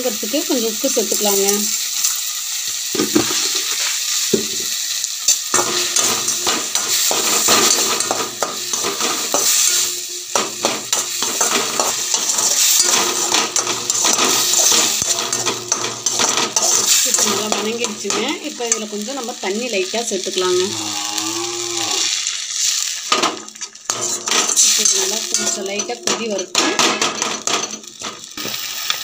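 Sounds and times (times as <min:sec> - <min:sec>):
food sizzling in oil: 0:00.0 - 0:29.0
metal spatula scraping a pan: 0:05.3 - 0:19.0, 0:23.8 - 0:29.0.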